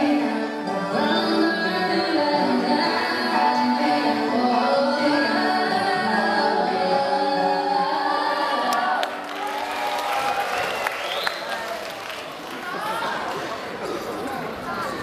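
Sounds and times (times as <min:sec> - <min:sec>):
music with several singing voices: 0:00.0 - 0:09.4.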